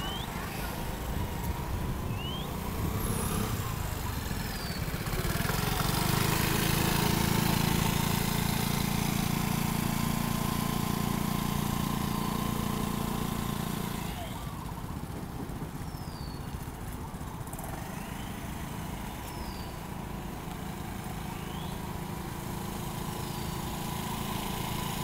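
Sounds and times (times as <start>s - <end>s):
scooter engine passing: 0.0s - 25.0s.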